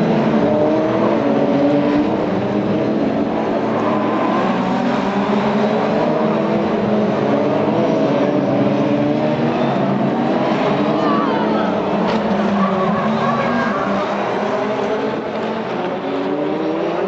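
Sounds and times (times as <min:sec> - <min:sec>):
racing car engines revving: 0:00.0 - 0:17.0.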